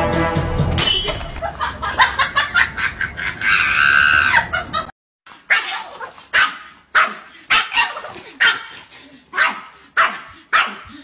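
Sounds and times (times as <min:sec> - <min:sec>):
animal yelps or barks: 0:03.2 - 0:04.5, 0:05.4 - 0:08.7.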